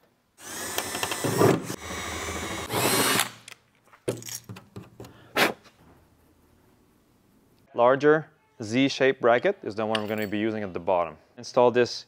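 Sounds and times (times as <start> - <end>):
cordless drill drilling sheet metal: 0.4 - 3.5.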